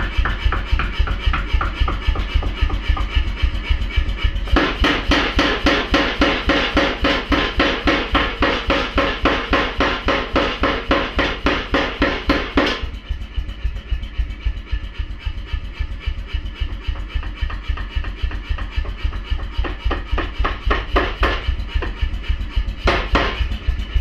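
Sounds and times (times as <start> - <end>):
power hammer striking timber: 0.0 - 3.2, 4.5 - 12.9, 17.2 - 22.0, 22.8 - 23.5.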